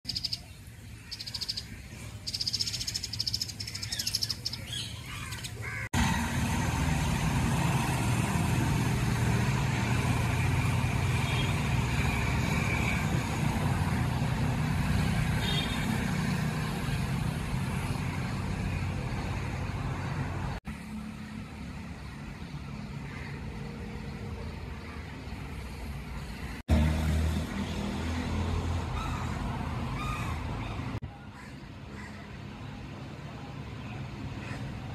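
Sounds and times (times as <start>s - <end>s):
birds chirping: 0.0s - 5.9s.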